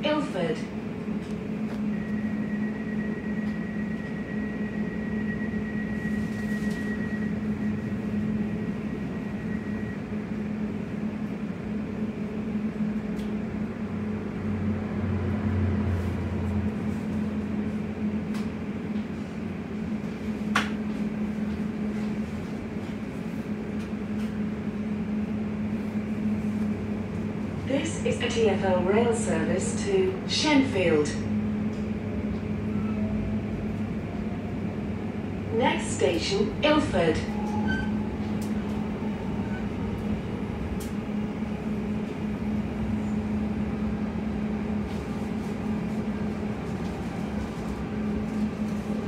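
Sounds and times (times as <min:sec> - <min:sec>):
train air-conditioning hum: 0:00.0 - 0:49.0
faint high whine: 0:01.7 - 0:10.4.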